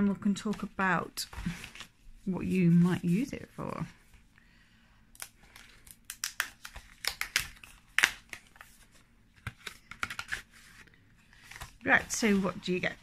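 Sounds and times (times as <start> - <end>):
card packaging rustling and tapping: 6.1 - 12.3.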